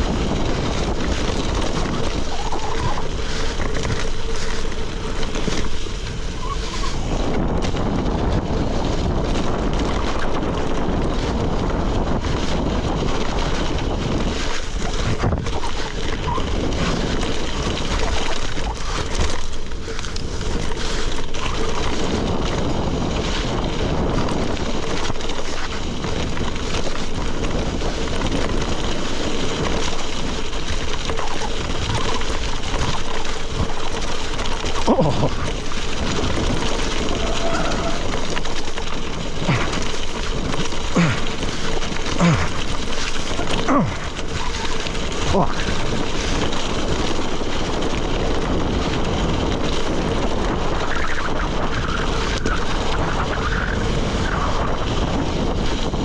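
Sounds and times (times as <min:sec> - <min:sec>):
bicycle tyres on gravel: 0:00.0 - 0:56.0
wind buffeting microphone: 0:00.0 - 0:56.0.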